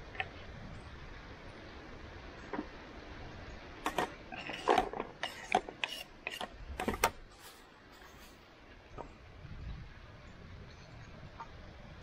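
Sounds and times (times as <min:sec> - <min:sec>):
sharp clicks and knocks: 0:03.8 - 0:07.2.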